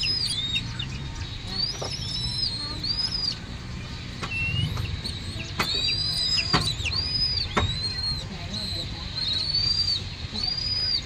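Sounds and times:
raptor chick begging whistles: 0:01.5 - 0:03.4, 0:04.3 - 0:11.0.

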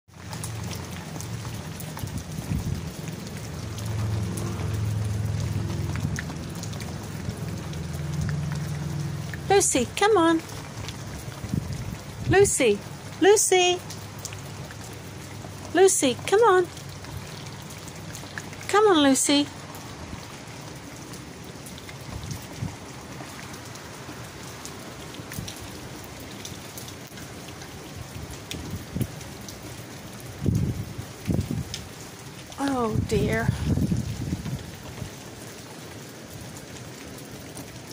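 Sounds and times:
raindrops ticking close by: 0:00.1 - 0:37.9
steady rain falling: 0:00.1 - 0:37.9
low rumble: 0:02.0 - 0:09.5.

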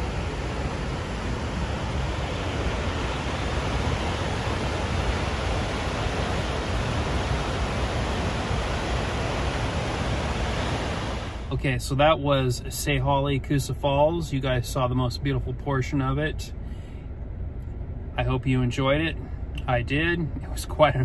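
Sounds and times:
waterfall rushing: 0:00.0 - 0:11.4.

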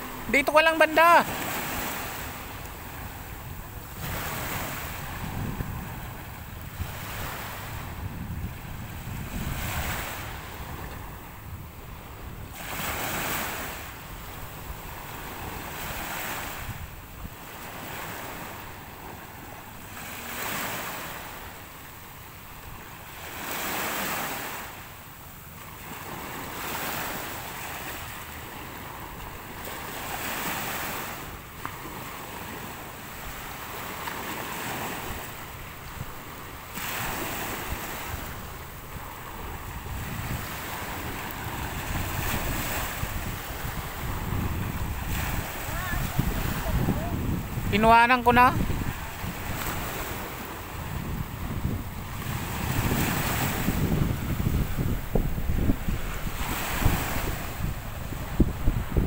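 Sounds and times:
small waves breaking on shore: 0:00.0 - 0:59.0
wind rumble on microphone: 0:01.7 - 0:18.6, 0:37.0 - 0:59.0.

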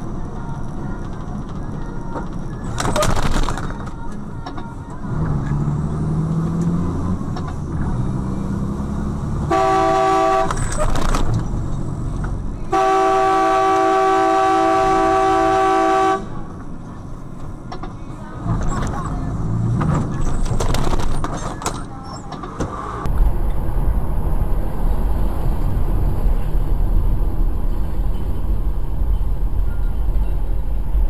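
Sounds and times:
vehicle driving drone: 0:04.9 - 0:09.5, 0:22.3 - 0:31.0
vehicle horn blasts: 0:09.5 - 0:10.6, 0:12.7 - 0:16.4.

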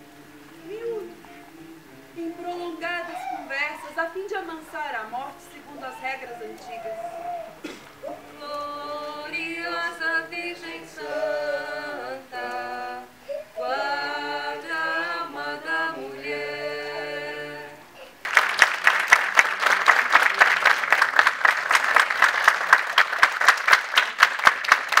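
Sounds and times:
group singing unaccompanied: 0:00.0 - 0:02.9, 0:07.6 - 0:18.0
audience applause: 0:18.2 - 0:25.0.

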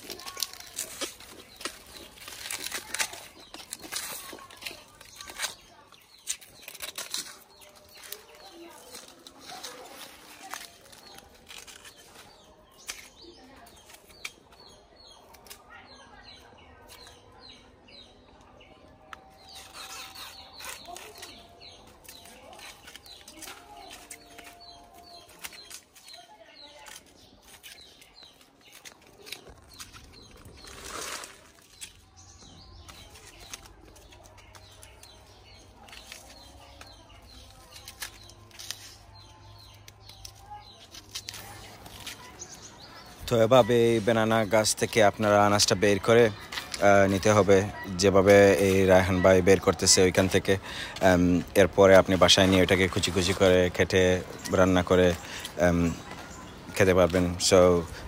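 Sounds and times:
plant sheaths snapping: 0:00.0 - 0:15.7, 0:19.1 - 0:42.6
small birds chirping: 0:00.0 - 0:58.0.

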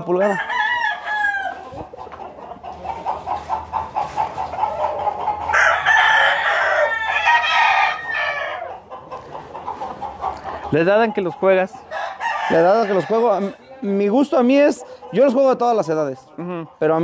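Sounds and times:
rooster crowing: 0:00.0 - 0:01.7, 0:05.5 - 0:08.8, 0:11.9 - 0:13.6
chickens clucking: 0:00.0 - 0:17.0.

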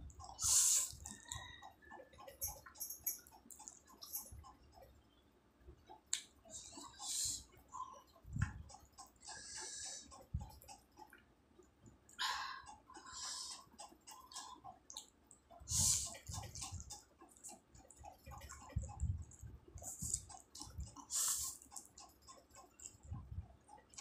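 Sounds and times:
chewing: 0:00.1 - 0:04.9, 0:12.1 - 0:24.0.

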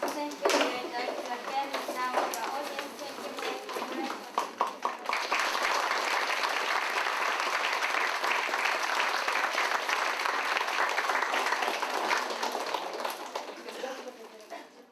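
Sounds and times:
crowd applauding: 0:04.4 - 0:14.4.

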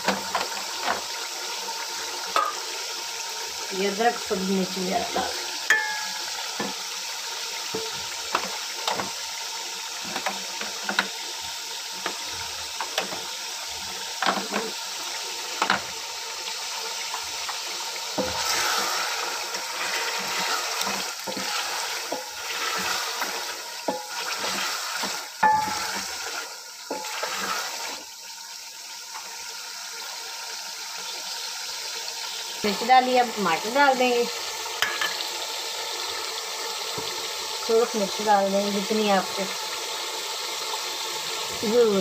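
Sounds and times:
chicken sizzling in a pot: 0:00.0 - 0:42.0
wooden spatula scraping a pot: 0:18.2 - 0:28.0.

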